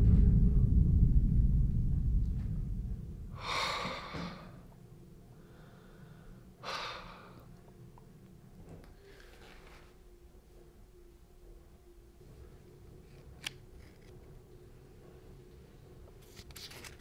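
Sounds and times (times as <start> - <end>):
low rumble: 0.0 - 5.7
man breathing hard: 3.3 - 4.7, 5.3 - 7.6.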